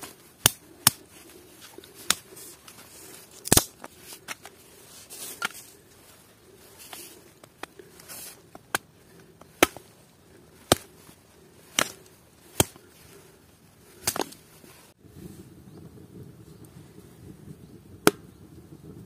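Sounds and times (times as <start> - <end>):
wood being chopped: 3.4 - 3.9, 9.4 - 9.9, 10.6 - 10.9, 11.7 - 12.8, 14.0 - 14.4, 18.0 - 18.2.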